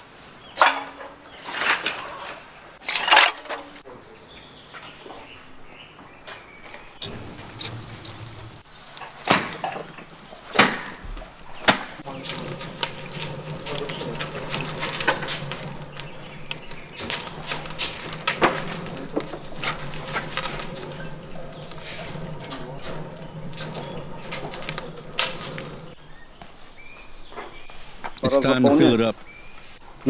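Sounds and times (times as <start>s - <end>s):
fire crackling pops: 7.0s - 26.6s
low rumble of burning: 7.0s - 28.1s
wood fire cracks: 7.0s - 28.3s.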